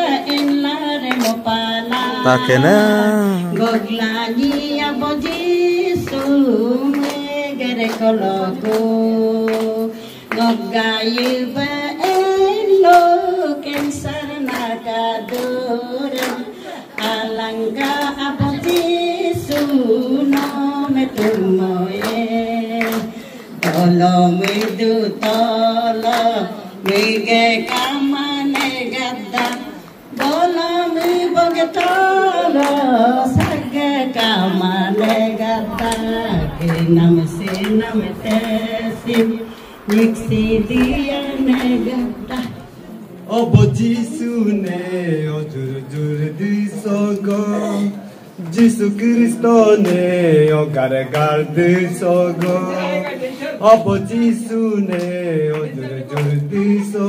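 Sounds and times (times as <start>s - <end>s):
person singing gospel song: 0.0s - 57.0s
hand clapping: 9.5s - 10.5s, 26.0s - 32.0s, 35.0s - 42.6s.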